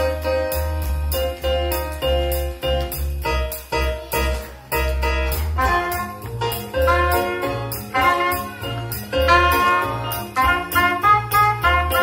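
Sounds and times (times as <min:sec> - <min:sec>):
electric keyboard accompaniment: 0:00.0 - 0:12.0
soprano saxophone melody: 0:06.8 - 0:12.0.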